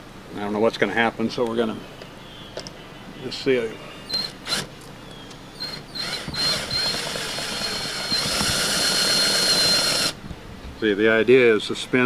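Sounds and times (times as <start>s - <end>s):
cordless drill whining: 4.1s - 4.7s, 5.6s - 10.2s
metal grinding: 5.6s - 10.2s.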